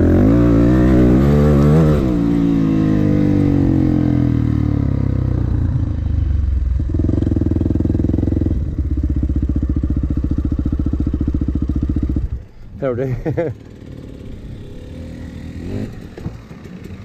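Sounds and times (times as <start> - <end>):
dirt bike engine: 0.0 - 17.0.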